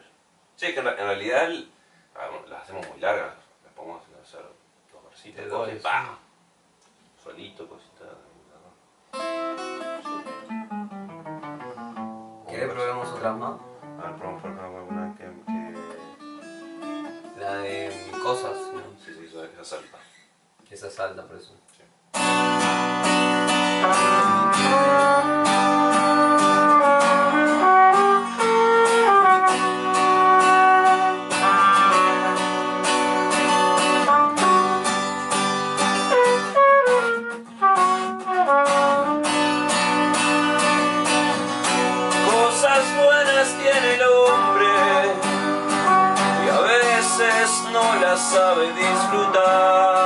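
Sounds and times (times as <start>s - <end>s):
acoustic guitar strumming: 9.1s - 19.0s, 22.1s - 50.0s
trumpet melody: 9.2s - 19.0s, 22.3s - 50.0s.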